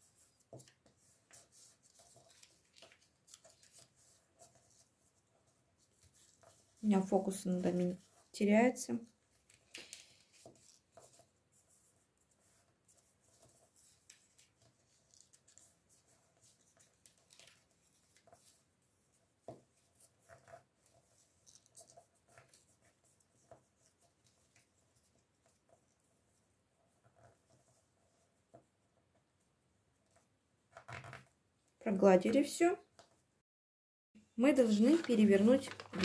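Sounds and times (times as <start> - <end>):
paper crinkling while folded: 0.0 - 8.4, 9.0 - 18.7, 19.8 - 25.8, 34.5 - 36.0.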